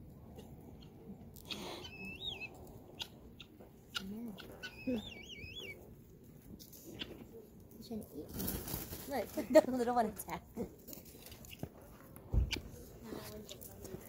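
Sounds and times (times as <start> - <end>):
bird whistled warbling call: 4.6 - 5.8.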